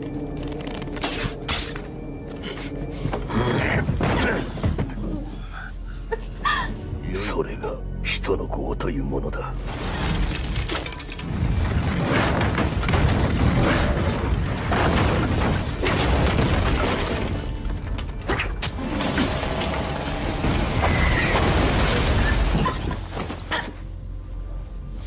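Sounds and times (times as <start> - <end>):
music: 0.0 - 25.0
crashes and bangs: 9.6 - 17.9.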